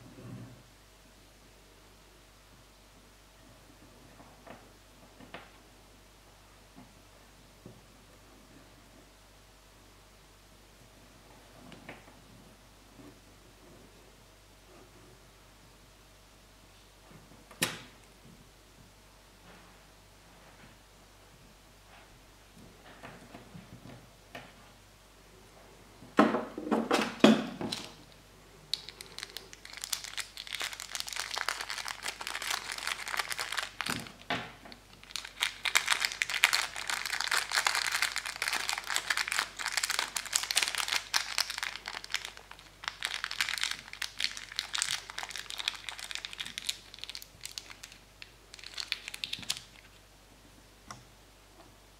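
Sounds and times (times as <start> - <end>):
plastic bag crinkling: 28.7 - 50.0.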